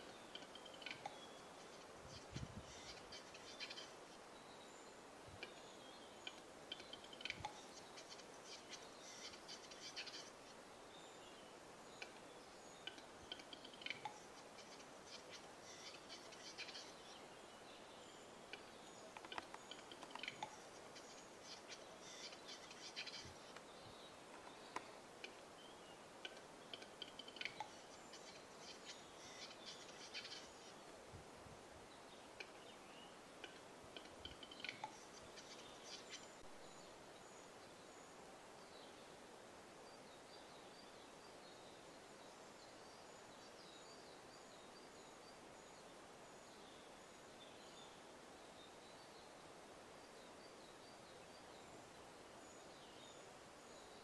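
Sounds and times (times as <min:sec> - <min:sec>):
bird clicks and scratchy notes: 0:06.2 - 0:07.6, 0:18.5 - 0:20.6, 0:26.2 - 0:27.8.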